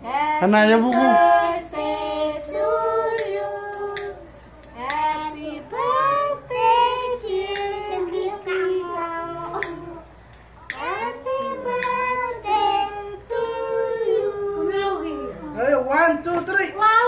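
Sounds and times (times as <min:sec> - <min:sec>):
children singing: 0:01.1 - 0:10.1, 0:10.8 - 0:15.4.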